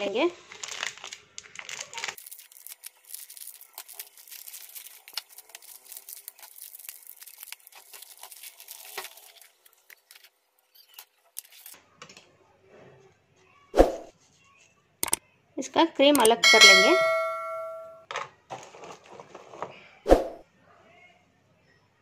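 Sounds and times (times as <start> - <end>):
plastic wrapper crinkling and tearing: 0.1 - 11.8, 18.1 - 19.8.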